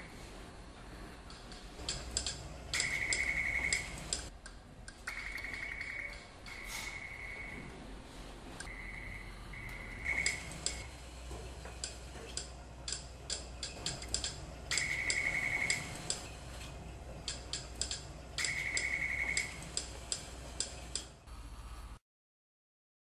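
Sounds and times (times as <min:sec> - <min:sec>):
held electronic beeps: 0:01.9 - 0:04.3, 0:13.6 - 0:16.3, 0:17.3 - 0:19.9.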